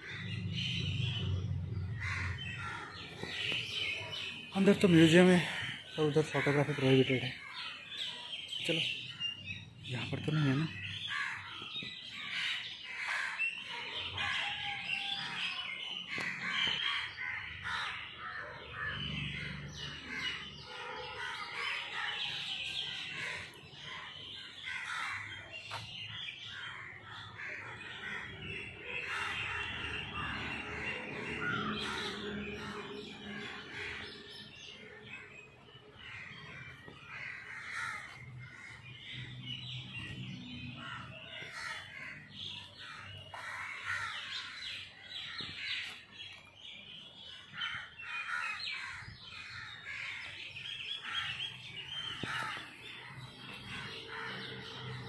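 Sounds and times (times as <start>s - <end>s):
birds chirping and calling: 0.0s - 55.0s.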